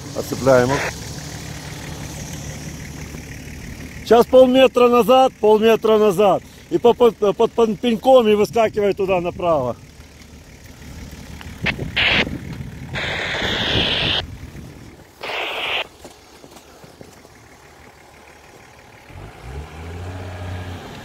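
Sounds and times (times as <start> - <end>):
vehicle engine running: 0.0 - 21.0
short hissing bursts: 13.0 - 14.2, 15.2 - 15.9.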